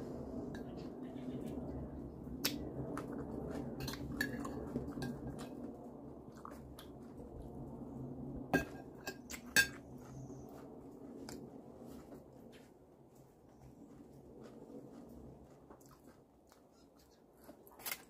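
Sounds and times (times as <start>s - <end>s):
chewing: 2.4s - 7.8s, 9.2s - 18.0s
spoon clinking on ceramic plate: 8.6s - 9.8s.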